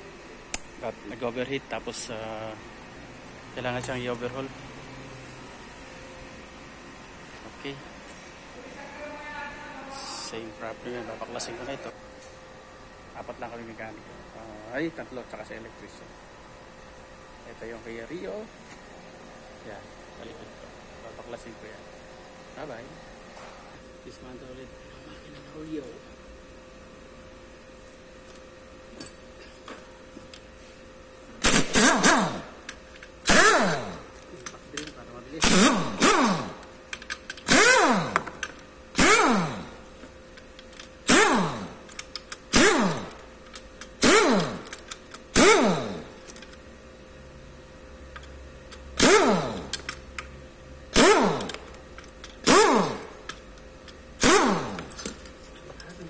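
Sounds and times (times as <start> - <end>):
pneumatic wrench whirring: 31.4 - 34.2, 35.4 - 39.9, 40.7 - 46.6, 48.7 - 50.0, 50.9 - 55.4.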